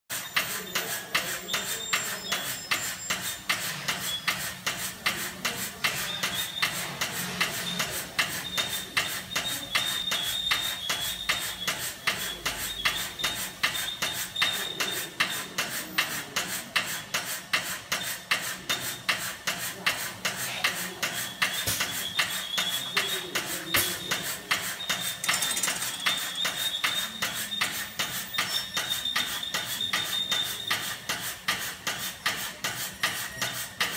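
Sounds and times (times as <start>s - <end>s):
machine rhythmic clacking: 0.1s - 33.9s.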